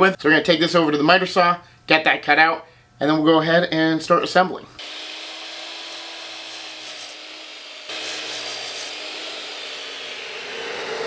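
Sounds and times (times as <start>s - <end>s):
miter saw cutting wood: 4.8s - 11.0s.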